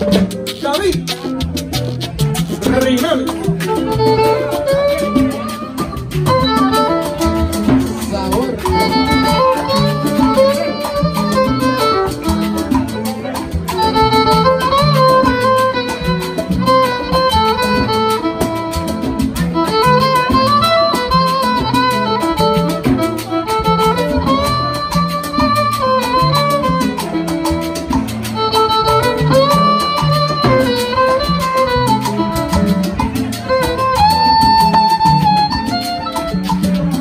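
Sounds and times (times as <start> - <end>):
repeating bass line: 0.0 - 18.0
steady percussion: 0.0 - 37.0
violin melody: 0.0 - 37.0.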